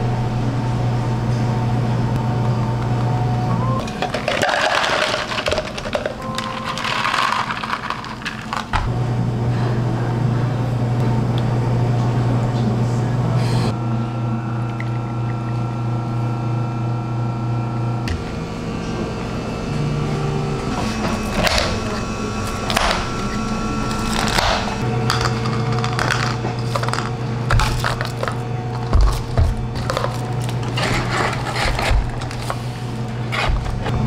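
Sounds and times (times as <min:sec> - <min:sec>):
low hum with held tones: 0:00.0 - 0:34.0
plastic cups and lids crackling: 0:03.8 - 0:08.8, 0:25.0 - 0:32.6.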